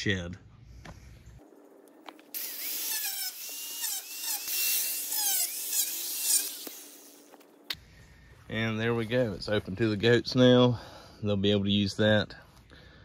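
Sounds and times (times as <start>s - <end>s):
cutoff wheel cutting wire: 2.3s - 7.3s.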